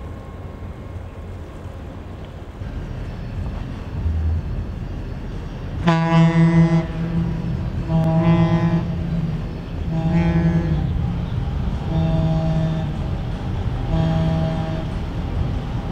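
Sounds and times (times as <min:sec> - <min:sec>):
low rumble: 0:00.0 - 0:15.9
boat horn blasts: 0:05.8 - 0:15.2.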